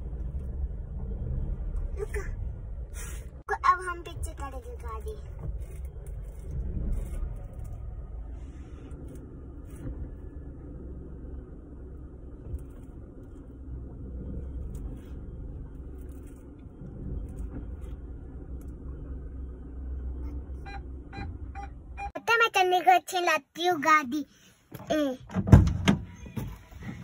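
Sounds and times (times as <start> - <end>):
car engine rumble from cabin: 0.0 - 22.2.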